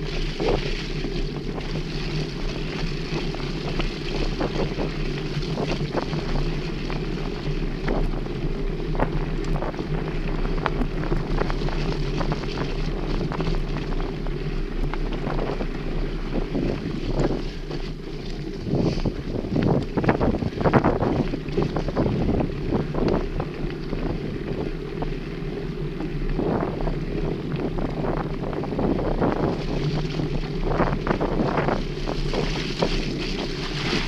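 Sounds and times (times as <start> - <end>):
bike clicks and rattles: 0.0 - 34.0
bike tyres rolling on dirt: 0.0 - 34.0
wind buffeting microphone: 0.0 - 34.0.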